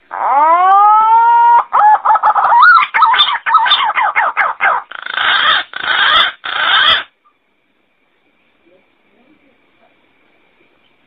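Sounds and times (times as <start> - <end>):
pigeon calling: 0.0 - 7.1.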